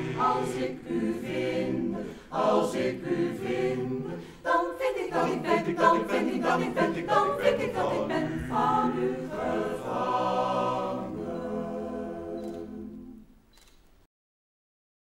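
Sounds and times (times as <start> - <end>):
choir singing a cappella: 0.0 - 13.4
faint clicks: 12.4 - 12.7, 13.5 - 14.0.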